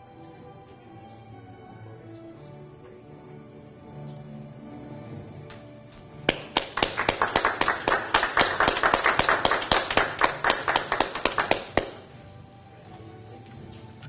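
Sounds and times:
people clapping: 5.5 - 12.2.

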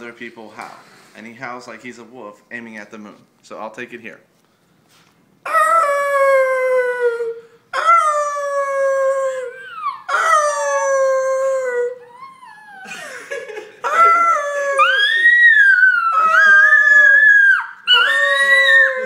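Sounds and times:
small dog howling: 5.5 - 12.9, 13.8 - 19.0
person howling: 5.5 - 13.0, 13.8 - 19.0.

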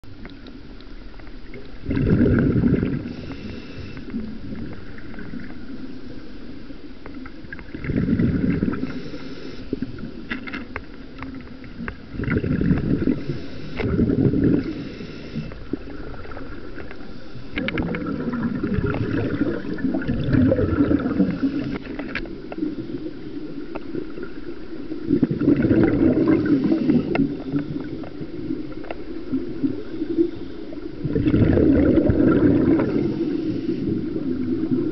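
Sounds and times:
rumbling exhaust bubbles: 1.8 - 3.4, 7.6 - 9.0, 12.0 - 14.9, 17.5 - 21.8, 25.0 - 30.0, 31.0 - 33.2
muffled underwater breathing: 2.0 - 4.8, 7.8 - 10.3, 12.2 - 22.9, 25.8 - 28.9, 29.7 - 34.9.

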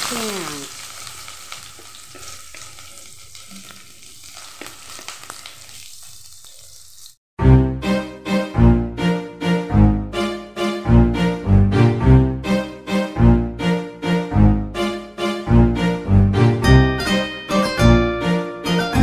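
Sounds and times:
onions sizzling in oil: 0.0 - 7.2.

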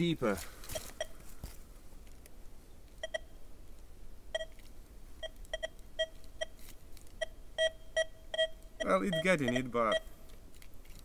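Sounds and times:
metal detector beeps: 7.2 - 10.1.

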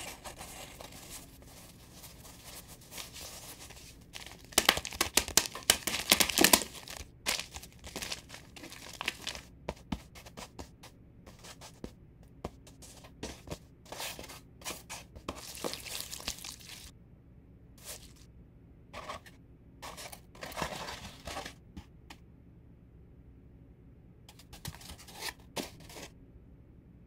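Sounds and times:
loud crinkling: 0.0 - 9.4.

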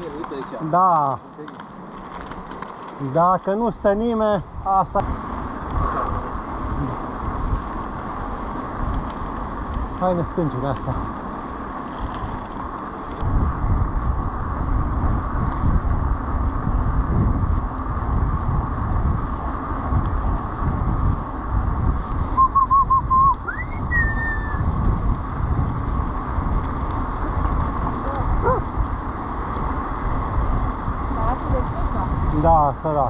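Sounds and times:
wind buffeting microphone: 3.6 - 33.0
warbling whistle sweeping up: 22.4 - 24.6.

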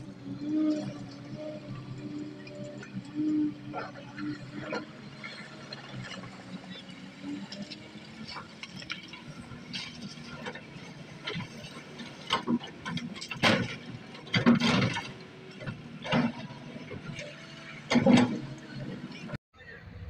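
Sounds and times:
diesel engine running: 0.0 - 20.0
excavator bucket clanking on stones: 8.3 - 18.5.

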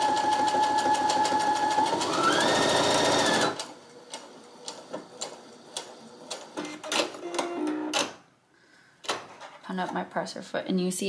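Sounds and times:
sewing machine stitching: 0.0 - 8.1.

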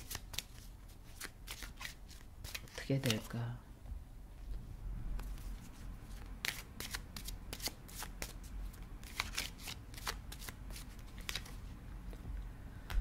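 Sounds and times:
cards being shuffled: 0.0 - 3.4, 5.2 - 11.6.

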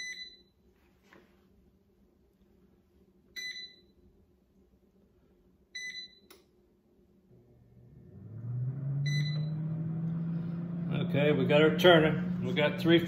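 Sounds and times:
air fryer humming: 7.0 - 13.0.

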